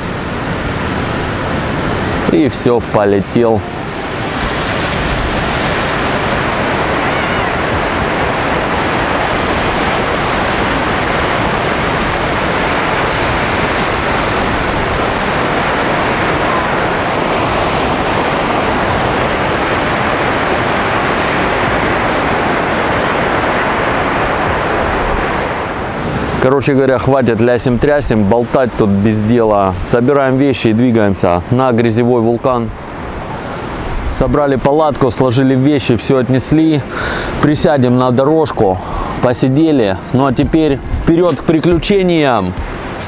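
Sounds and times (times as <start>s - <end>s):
sea surf breaking: 0.0s - 43.0s
wind: 0.0s - 43.0s.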